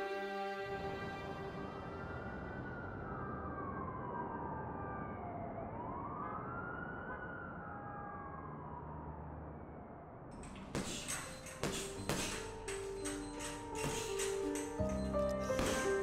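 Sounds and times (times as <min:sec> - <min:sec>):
siren wailing: 0:01.0 - 0:10.3.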